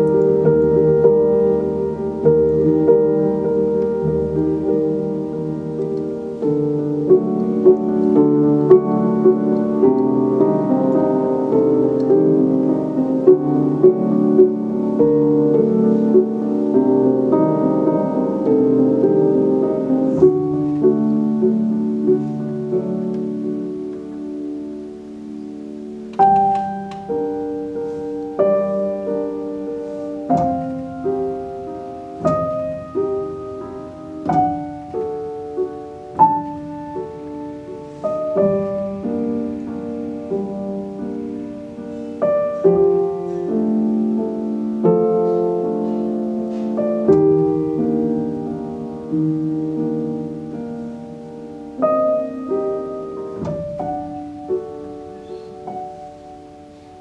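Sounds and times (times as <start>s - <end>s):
grand piano playing slow piece: 0.0s - 57.0s.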